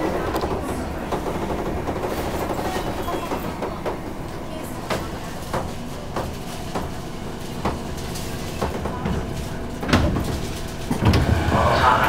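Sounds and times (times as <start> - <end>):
train running rumble: 0.0 - 12.0.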